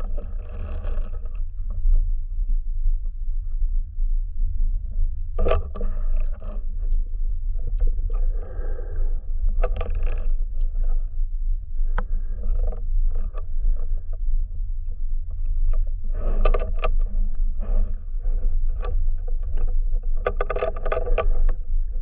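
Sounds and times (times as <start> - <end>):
muffled underwater rumble: 0.0 - 22.0.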